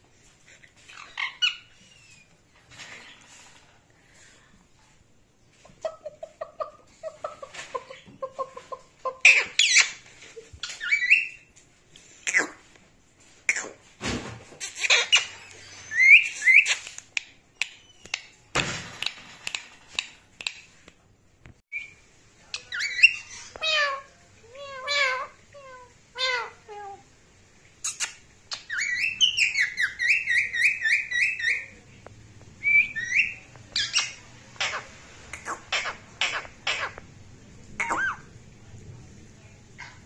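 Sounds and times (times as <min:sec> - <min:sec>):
parakeet squawking and chattering: 0:00.7 - 0:02.3, 0:05.9 - 0:10.0, 0:10.6 - 0:11.5, 0:14.6 - 0:17.1, 0:22.6 - 0:27.0, 0:27.8 - 0:31.8, 0:32.7 - 0:37.1, 0:37.8 - 0:38.4.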